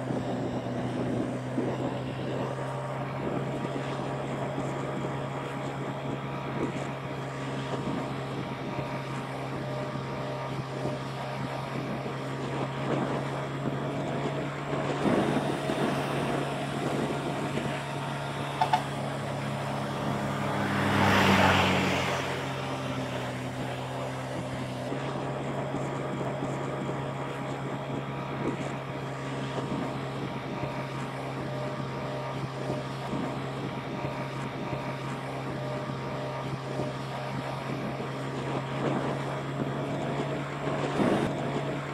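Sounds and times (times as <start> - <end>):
motorbike engine running: 0.0 - 41.9
road and wind noise: 0.0 - 41.9
loud rushing noise: 18.6 - 23.9.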